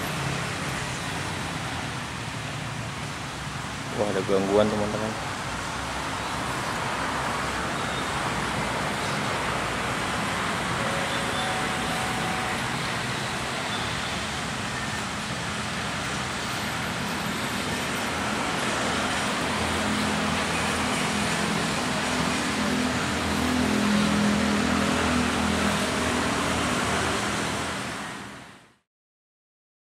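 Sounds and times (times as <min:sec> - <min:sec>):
electric train hum: 0:09.5 - 0:13.7.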